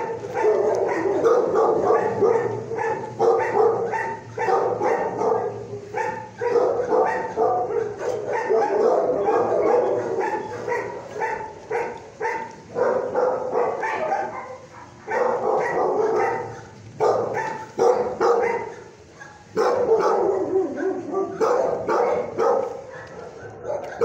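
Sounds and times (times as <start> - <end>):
dogs barking and yipping: 0.0 - 24.0.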